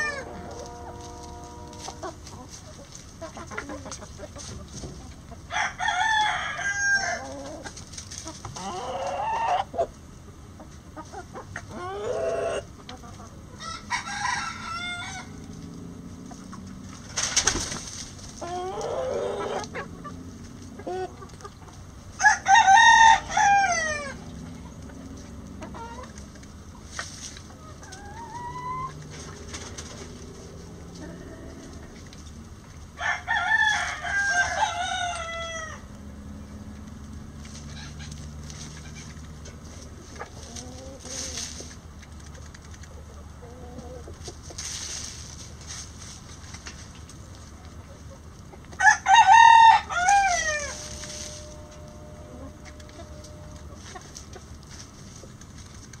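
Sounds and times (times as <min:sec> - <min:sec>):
roosters crowing: 0:00.0 - 0:02.8, 0:05.2 - 0:07.8, 0:08.4 - 0:09.9, 0:11.6 - 0:12.8, 0:13.4 - 0:26.8, 0:27.4 - 0:41.8, 0:48.7 - 0:54.5
hens clucking: 0:00.0 - 0:56.0.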